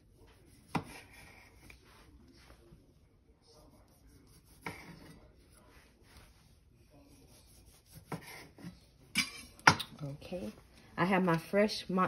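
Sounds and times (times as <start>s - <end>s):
knife cutting on wooden board: 0.4s - 1.8s, 4.0s - 5.2s, 7.4s - 8.8s.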